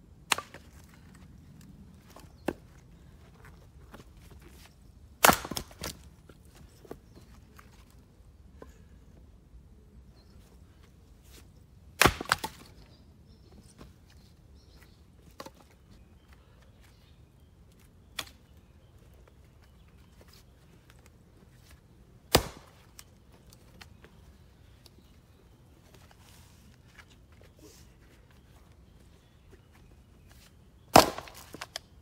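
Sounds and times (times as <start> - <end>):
axe chopping firewood: 0.3 - 0.8, 5.2 - 6.0, 12.0 - 12.7, 22.3 - 22.8, 30.9 - 31.8
wood cracking: 30.9 - 31.9.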